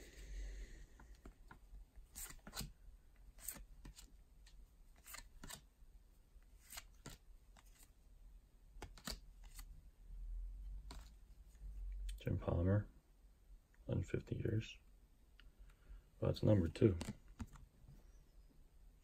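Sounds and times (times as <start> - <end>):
cards flipped with paper swishes: 1.2 - 5.6, 6.6 - 7.9, 8.8 - 9.7.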